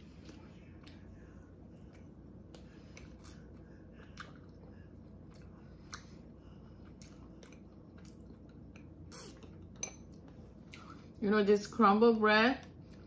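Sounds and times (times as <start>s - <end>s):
chewing bread: 0.1s - 11.2s
wet mouth clicks: 9.1s - 9.5s.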